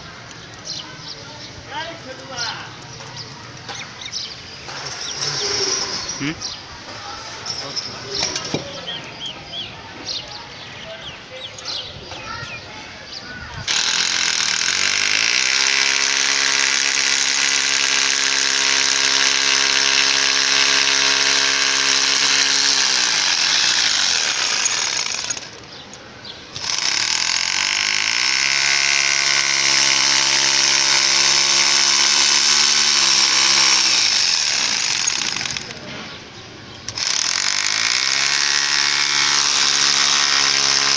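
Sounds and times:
hammer drill boring into brick: 0:13.6 - 0:25.7, 0:26.5 - 0:35.8, 0:36.9 - 0:40.9.

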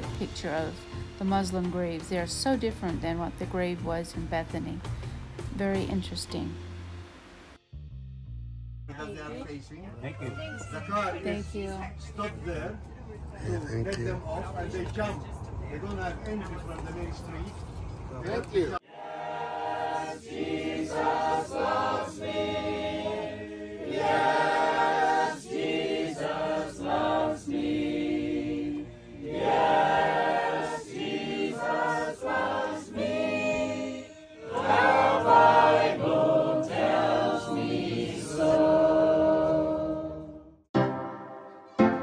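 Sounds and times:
choir singing a cappella: 0:18.8 - 0:40.6.

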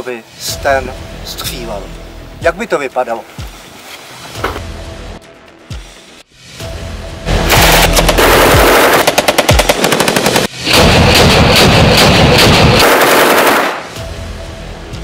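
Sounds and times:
submachine gun automatic fire: 0:07.5 - 0:13.9.

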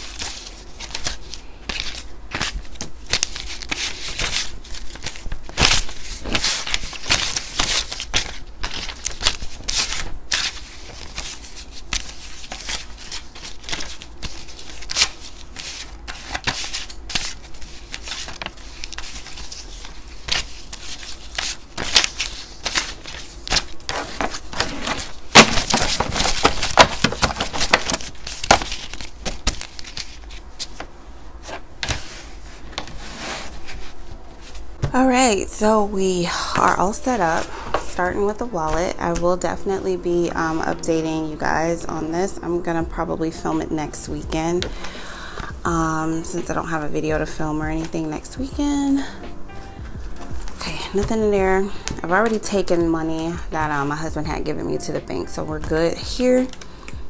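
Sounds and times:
paper rustling and crinkling: 0:00.0 - 0:35.0.

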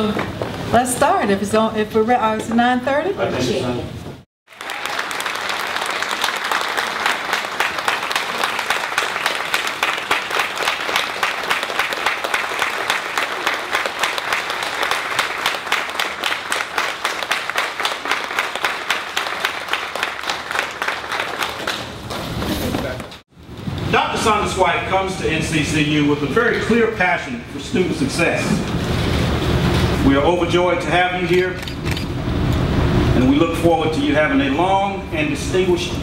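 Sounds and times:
audience applauding: 0:04.5 - 0:23.2.

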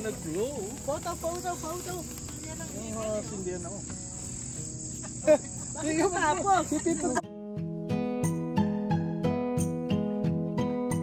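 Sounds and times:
people talking quietly: 0:00.0 - 0:07.2
crickets trilling: 0:00.0 - 0:07.3.

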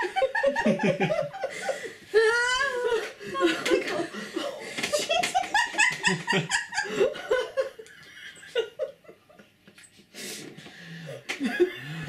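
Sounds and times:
people giggling: 0:00.0 - 0:09.6, 0:11.3 - 0:12.0.

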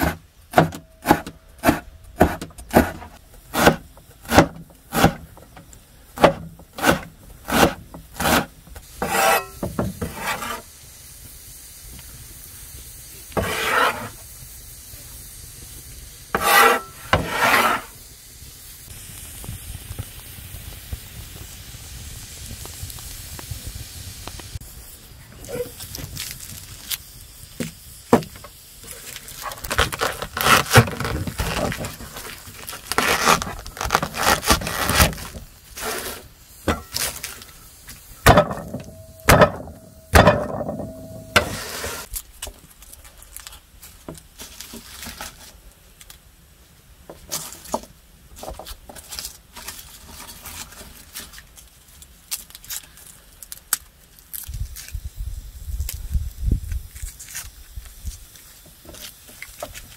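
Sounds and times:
garlic skins crackling: 0:28.8 - 0:36.2, 0:42.0 - 0:46.2, 0:49.0 - 0:55.2, 0:55.8 - 0:59.9.

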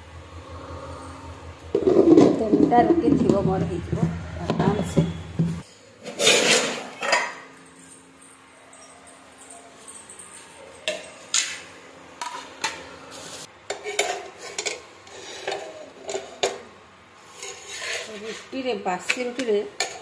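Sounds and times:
plates and pots clattering: 0:04.5 - 0:07.5.

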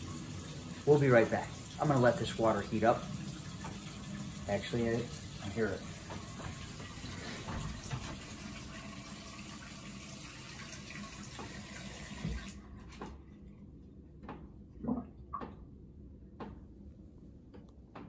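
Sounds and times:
water running into sink: 0:00.0 - 0:12.6.

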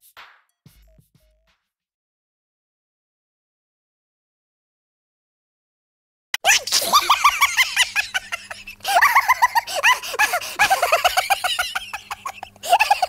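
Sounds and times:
high-pitched giggling laughter: 0:06.4 - 0:13.0.

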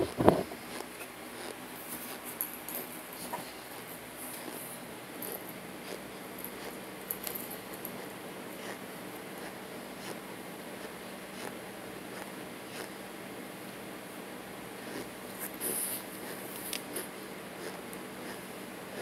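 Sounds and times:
mouth sounds of eating: 0:00.0 - 0:02.2, 0:03.2 - 0:13.0, 0:14.8 - 0:19.0
faint hum: 0:00.0 - 0:19.0
plastic spoon scraping powder: 0:14.9 - 0:18.4.

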